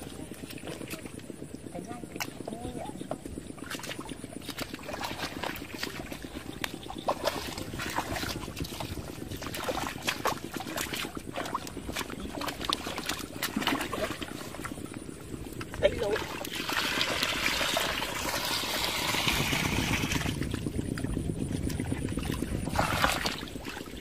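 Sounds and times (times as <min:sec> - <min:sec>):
splashing through muddy water: 0:03.6 - 0:24.0.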